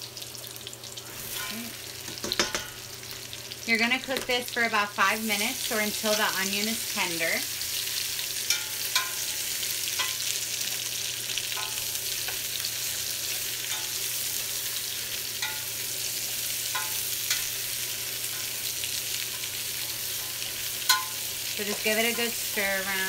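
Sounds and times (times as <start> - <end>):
vegetables sizzling in oil: 0.0 - 23.0
utensil clinking against pot: 8.5 - 9.3, 20.9 - 21.2.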